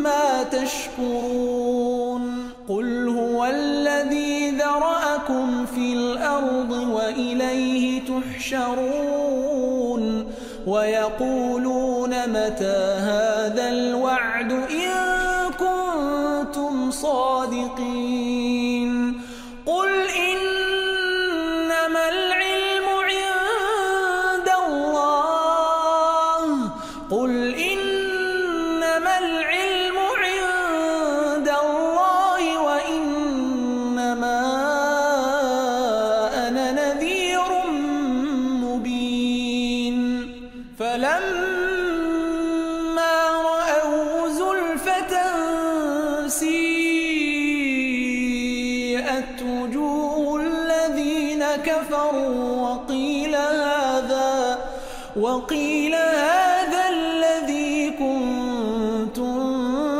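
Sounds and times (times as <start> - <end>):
man chanting recitation: 0.0 - 59.9
man breathing: 10.3 - 10.7, 19.2 - 19.6, 26.8 - 27.1, 54.7 - 55.2.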